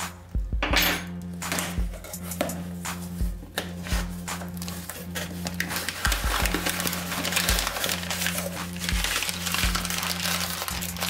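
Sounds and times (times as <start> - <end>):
background music with bass beat: 0.0 - 11.0
cardboard rustling: 1.9 - 11.0
packing paper crinkling: 3.6 - 11.0.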